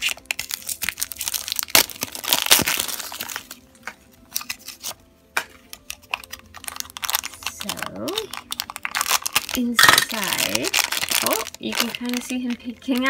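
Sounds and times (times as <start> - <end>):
plastic shrink-wrap tearing and crinkling: 0.0 - 13.0
plastic toy clicking and rustling: 5.8 - 13.0.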